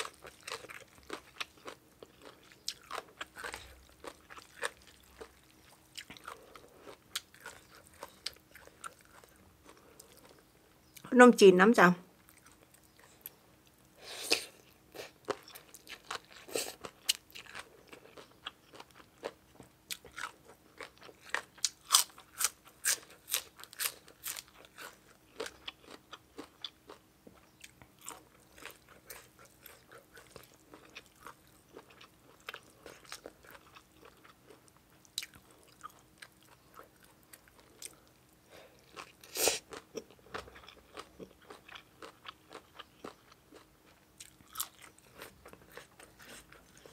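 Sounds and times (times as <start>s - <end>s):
person chewing food: 0.0s - 11.1s, 12.2s - 46.9s.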